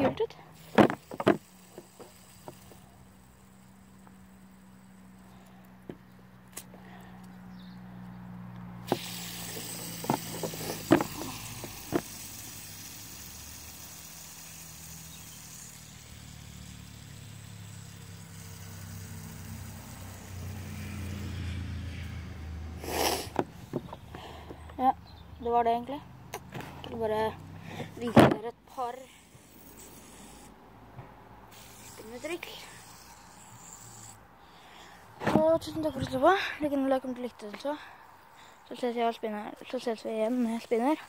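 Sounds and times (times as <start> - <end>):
fingers clicking on fidget spinner: 0.6 - 6.7, 8.9 - 21.3, 31.5 - 34.2.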